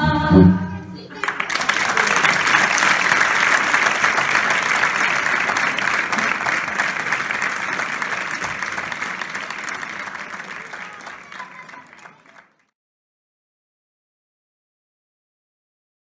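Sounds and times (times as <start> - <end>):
audience applauding: 1.1 - 12.7.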